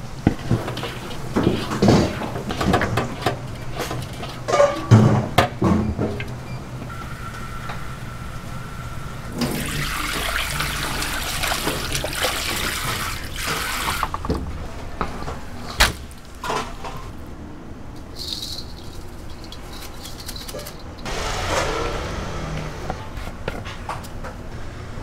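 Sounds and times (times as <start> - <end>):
water spraying into a sink: 9.4 - 14.1
handling sounds: 17.9 - 21.1.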